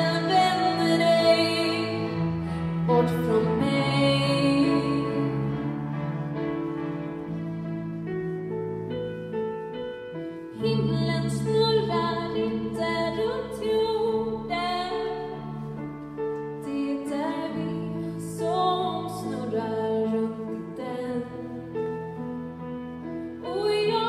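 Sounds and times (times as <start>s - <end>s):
orchestra accompaniment: 0.2s - 10.5s
woman singing with vibrato: 2.8s - 5.5s.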